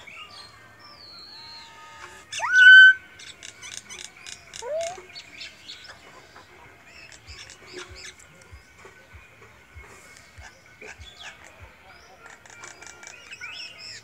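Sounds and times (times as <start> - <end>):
bird rising whistle: 1.3 - 3.0.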